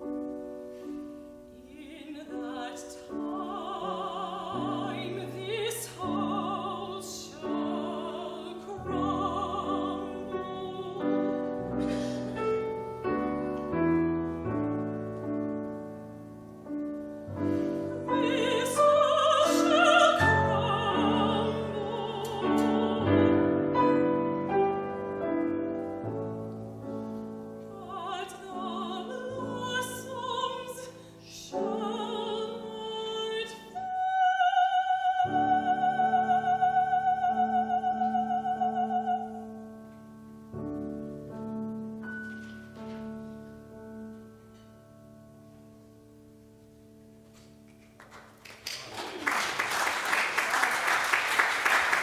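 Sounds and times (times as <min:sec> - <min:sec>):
grand piano: 0:00.0 - 0:52.0
operatic singing: 0:17.9 - 0:24.0
audience applause: 0:48.0 - 0:52.0.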